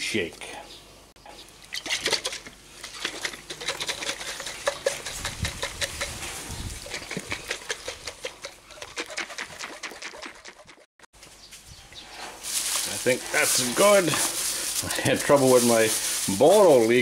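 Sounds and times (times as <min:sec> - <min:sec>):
jar shaken with cream rattling: 0:02.0 - 0:10.8.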